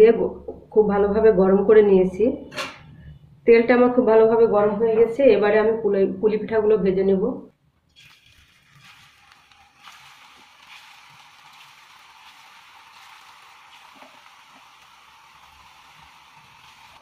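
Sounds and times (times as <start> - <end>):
faint crackles: 7.8 - 17.0
oil sizzling: 7.9 - 17.0.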